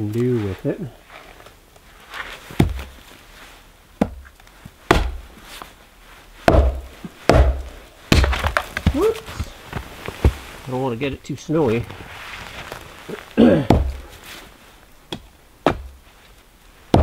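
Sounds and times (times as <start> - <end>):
axe chopping wood: 2.6 - 2.8, 4.9 - 5.3, 6.4 - 9.5, 13.4 - 14.0, 15.1 - 16.0.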